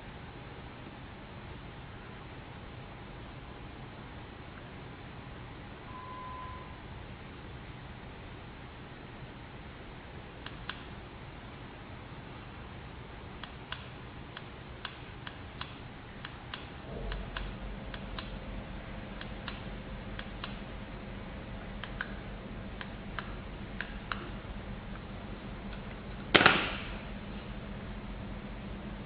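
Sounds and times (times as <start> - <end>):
low steady hum: 0.0 - 29.0
loud sharp knock: 26.3 - 27.0.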